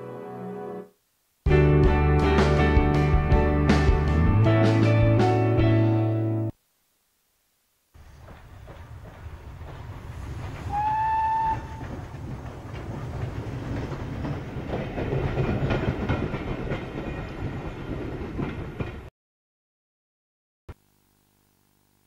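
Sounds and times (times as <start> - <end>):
train rumbling and rattling: 8.0 - 19.1
train whistle: 10.6 - 12.0.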